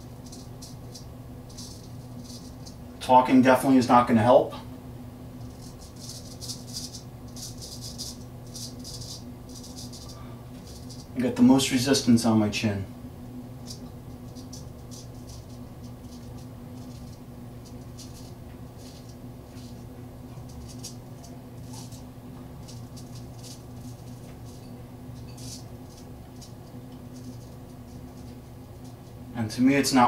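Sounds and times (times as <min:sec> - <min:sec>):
low hum: 0:04.5 - 0:29.6
razor scraping whiskers: 0:05.4 - 0:11.2, 0:13.6 - 0:29.1.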